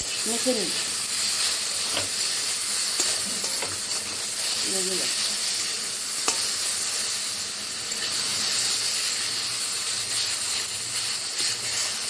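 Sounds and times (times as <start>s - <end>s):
spatula stirring: 0.0s - 6.7s
frying in hot oil sizzling: 0.0s - 12.0s.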